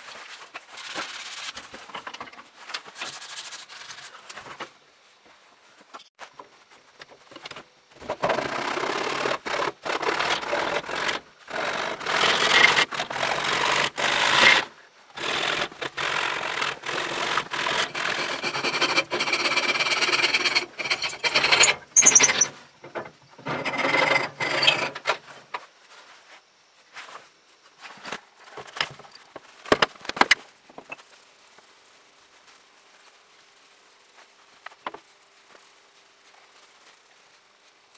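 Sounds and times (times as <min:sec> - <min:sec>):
rough rubbing of wood: 0:08.3 - 0:25.1.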